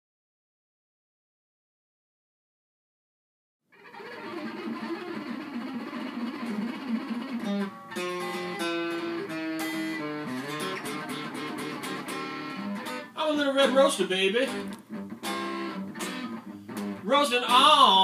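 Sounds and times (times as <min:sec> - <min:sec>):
electric guitar playing blues: 0:03.8 - 0:18.0.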